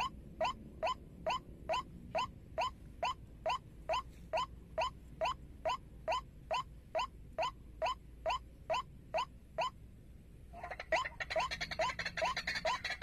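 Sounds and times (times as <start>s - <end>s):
waterhen calling: 10.6s - 13.0s.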